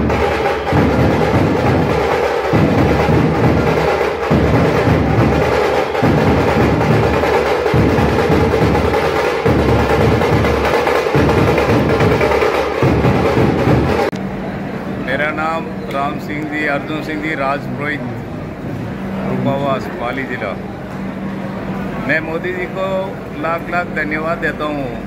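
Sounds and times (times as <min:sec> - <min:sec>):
dhol drums beaten in rhythm: 0:00.0 - 0:14.1.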